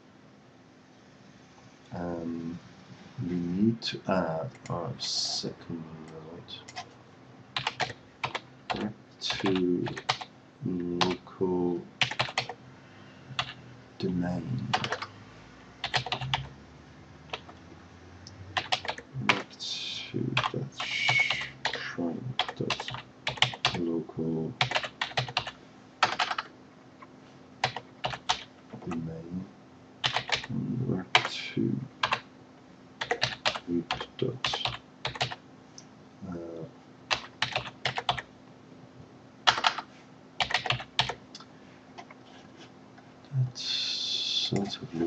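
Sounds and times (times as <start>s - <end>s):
computer keyboard typing: 6.6s - 6.9s, 7.6s - 10.3s, 11.0s - 11.2s, 12.0s - 12.6s, 13.4s - 13.6s, 14.7s - 15.1s, 15.8s - 16.5s, 17.3s - 17.6s, 18.6s - 19.4s, 22.4s - 23.8s, 24.6s - 26.5s, 27.6s - 29.1s, 30.0s - 30.5s, 31.1s - 31.3s, 32.0s - 32.2s, 33.0s - 35.4s, 37.1s - 38.3s, 39.5s - 39.8s, 40.4s - 41.4s.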